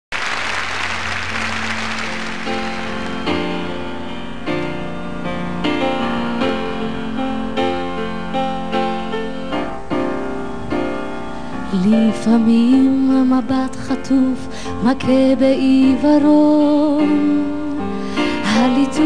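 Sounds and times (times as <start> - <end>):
audience applause: 0.1 - 3.7.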